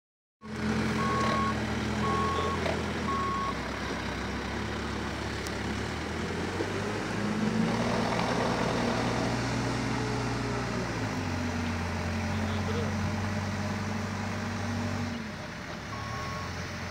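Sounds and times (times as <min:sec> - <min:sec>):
diesel engines running: 0:00.4 - 0:16.9
reversing alarm beeping: 0:01.0 - 0:03.6, 0:15.9 - 0:16.6.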